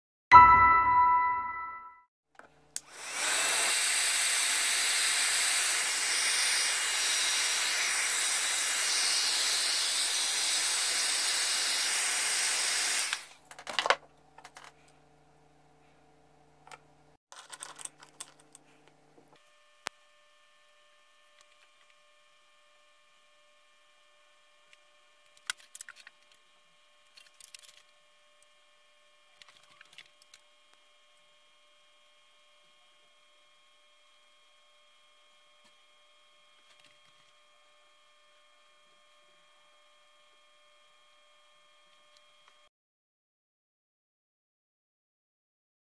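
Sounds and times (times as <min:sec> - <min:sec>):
hot-air blower hissing: 0:02.8 - 0:13.3.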